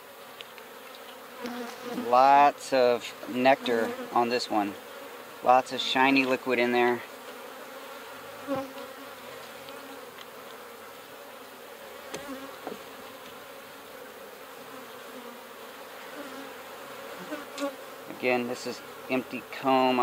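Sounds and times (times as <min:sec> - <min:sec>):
honeybees buzzing: 0:00.0 - 0:20.0
light knocks on hive: 0:12.1 - 0:12.8.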